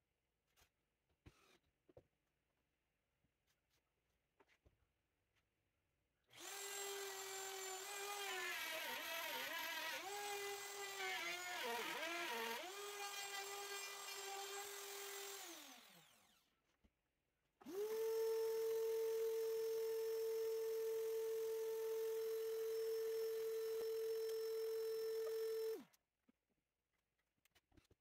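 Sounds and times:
router motor whining: 6.3s - 16.5s, 17.6s - 25.9s.

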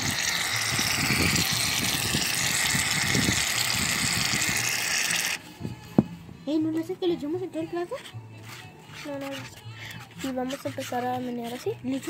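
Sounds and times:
aerosol can spraying foam: 0.0s - 5.4s.

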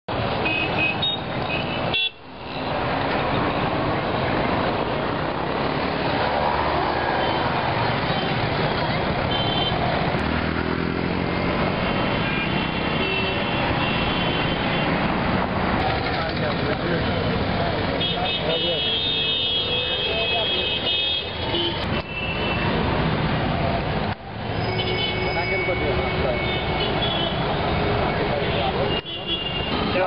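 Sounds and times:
busy street traffic: 0.1s - 30.0s
motorcycles running: 2.4s - 18.8s.

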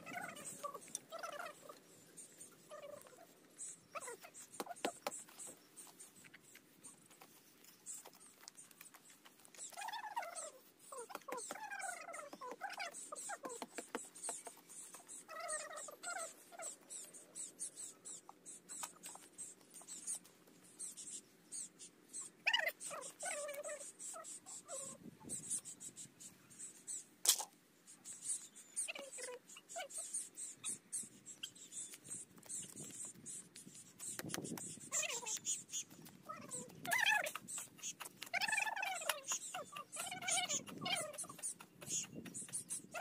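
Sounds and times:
young animal whimpering: 0.0s - 1.8s, 2.6s - 4.4s, 15.2s - 16.8s, 22.2s - 25.6s, 34.8s - 43.0s.

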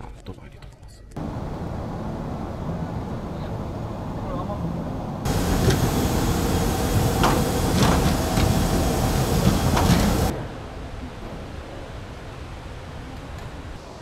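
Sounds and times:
loud rushing noise: 1.2s - 10.7s.

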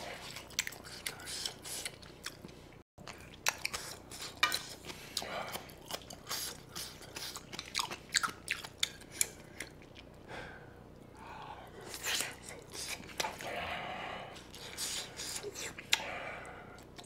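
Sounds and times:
chewing and biting food: 0.0s - 10.2s.

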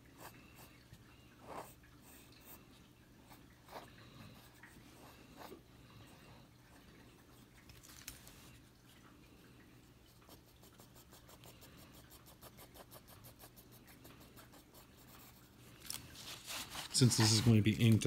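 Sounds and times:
pencil scratching on paper: 10.3s - 15.6s, 16.2s - 17.6s.

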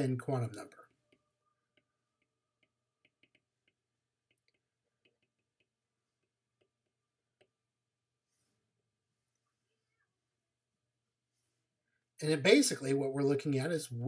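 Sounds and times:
stylus tapping on glass screen: 1.1s - 6.8s.

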